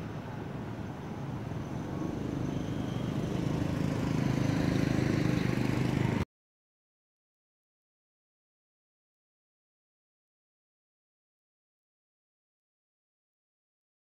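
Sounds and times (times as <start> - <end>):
motor engine running: 2.1 - 6.2.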